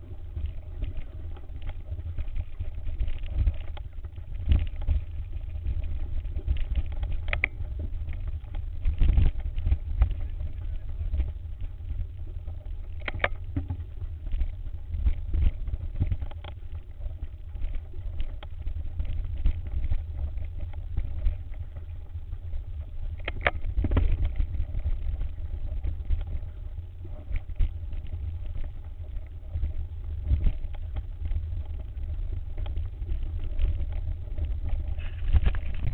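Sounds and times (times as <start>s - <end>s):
wind rumble: 0.0s - 35.9s.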